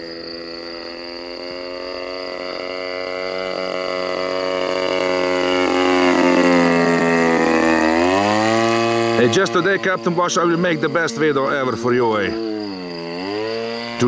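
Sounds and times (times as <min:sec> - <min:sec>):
model plane engine: 0:00.0 - 0:14.0.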